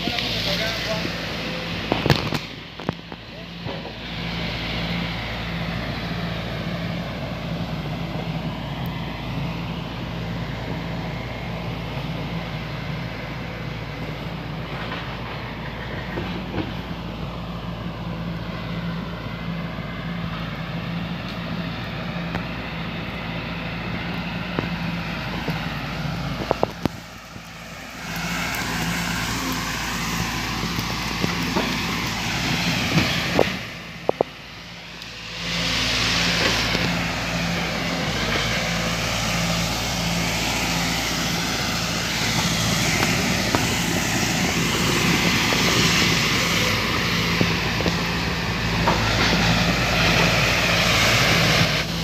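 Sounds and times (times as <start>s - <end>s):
excavator diesel engine running: 0.0s - 52.0s
hiss: 22.4s - 52.0s.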